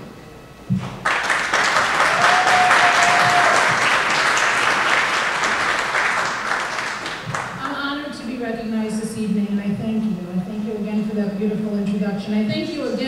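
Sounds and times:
audience applauding: 0.8s - 7.6s.

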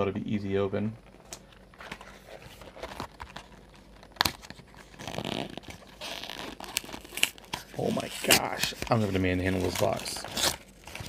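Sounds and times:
cardboard rustling: 1.5s - 11.0s
hands tearing cardboard box: 4.2s - 11.0s.

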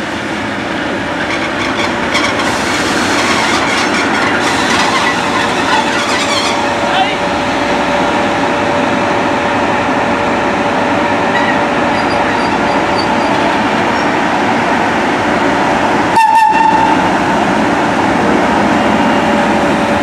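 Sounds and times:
steam train rumbling rattle: 0.0s - 20.0s
train whistle blast: 16.2s - 17.0s.

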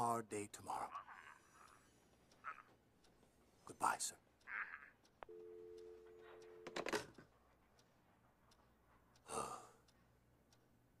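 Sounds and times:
two-note telephone dial tone: 5.2s - 7.1s
man sighing: 9.3s - 9.8s.

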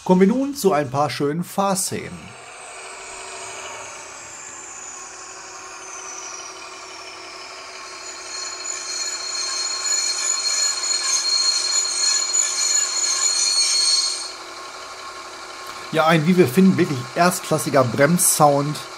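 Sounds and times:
model diesel engine sound: 1.4s - 18.9s
high whine falling in pitch: 1.6s - 14.5s
loud high brake squeal: 2.3s - 14.6s.

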